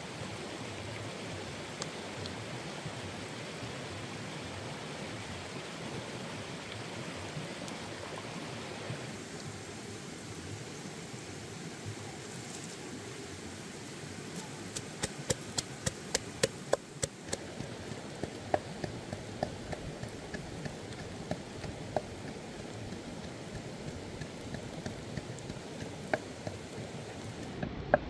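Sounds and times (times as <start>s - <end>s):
steady hiss: 8.8s - 28.0s
pestle pounding in wooden mortar: 14.8s - 17.5s, 18.2s - 26.5s.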